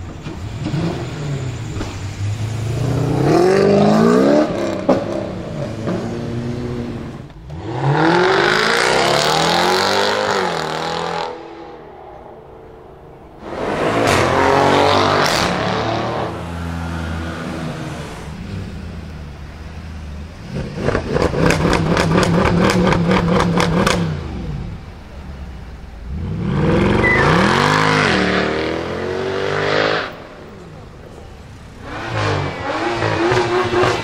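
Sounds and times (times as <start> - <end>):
car engine accelerating hard: 13.3 - 19.0, 26.0 - 31.0, 31.7 - 34.0
engine revving with stuttering crackle: 20.4 - 24.6, 31.8 - 34.0.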